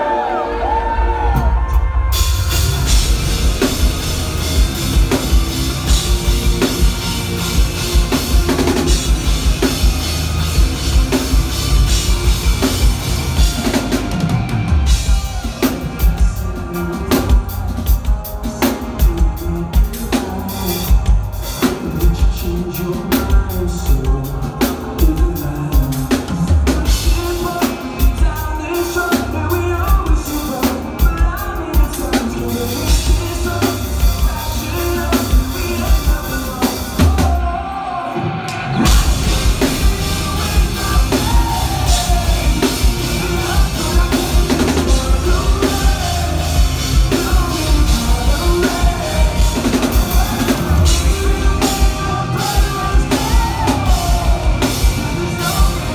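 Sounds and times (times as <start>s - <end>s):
drum kit beat: 0.0s - 55.9s
live rock band playing: 0.0s - 55.9s
person singing: 0.0s - 55.9s.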